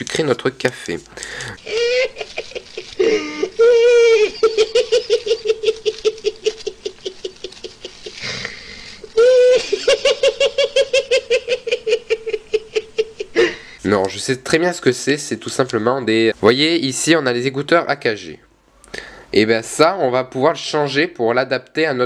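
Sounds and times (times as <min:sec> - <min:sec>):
man giggling: 0:01.6 - 0:13.6.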